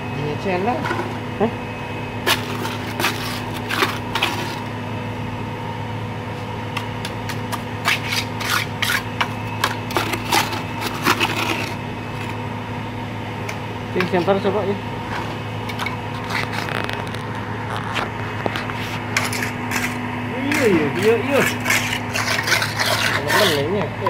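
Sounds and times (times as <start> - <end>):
steady low hum: 0.0 - 24.0
trowel scraping wet mortar: 2.3 - 4.7, 7.2 - 12.4, 15.7 - 16.9, 18.5 - 24.0.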